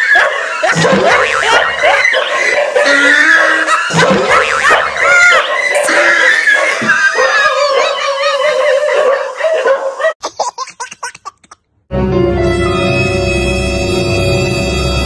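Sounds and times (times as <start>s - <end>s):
baby laughing: 0.0s - 11.7s
ominous music: 11.9s - 15.0s.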